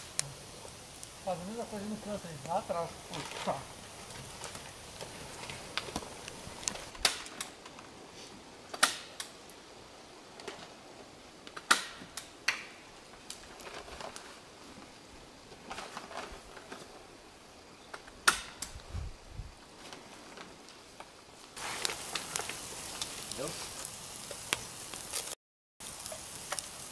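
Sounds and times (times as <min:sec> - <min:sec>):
dry wood cracking and popping: 0:00.0 - 0:07.9, 0:11.4 - 0:17.0, 0:19.7 - 0:26.9
faint hiss: 0:00.0 - 0:26.9.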